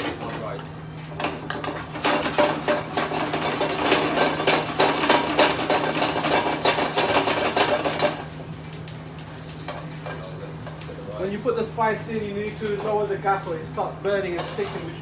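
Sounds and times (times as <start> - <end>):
metal ladle scraping pan: 14.4 - 15.0.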